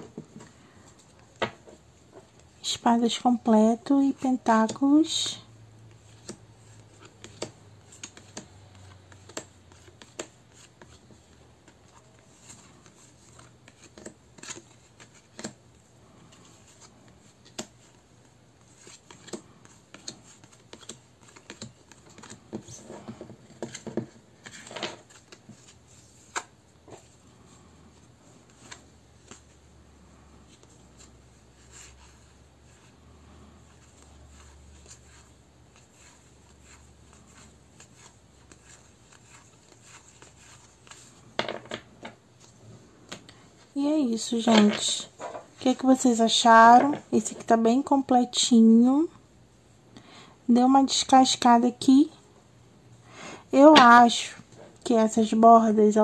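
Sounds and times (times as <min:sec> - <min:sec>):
cards clicking and tapping: 0:05.9 - 0:11.8, 0:12.5 - 0:15.6, 0:16.6 - 0:18.0, 0:18.7 - 0:26.5.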